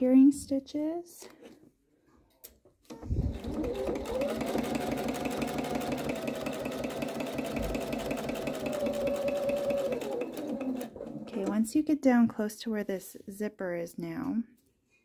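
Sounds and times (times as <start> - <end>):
sewing machine stitching: 2.9 - 11.7.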